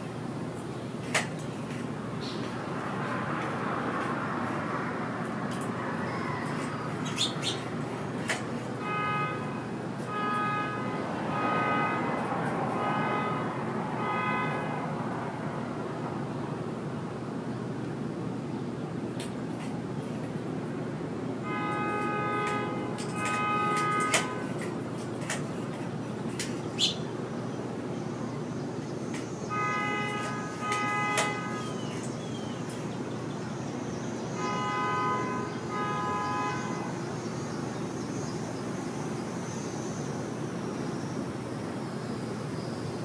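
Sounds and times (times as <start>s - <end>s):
horn long blasts: 8.8s - 14.8s, 21.4s - 24.5s, 29.5s - 31.7s, 34.4s - 37.0s.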